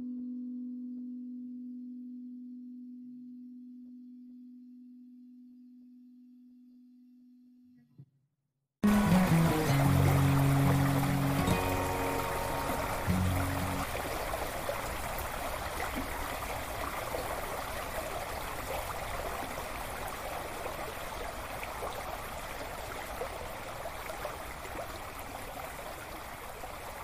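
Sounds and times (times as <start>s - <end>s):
creek water flowing over stones: 8.8s - 27.0s.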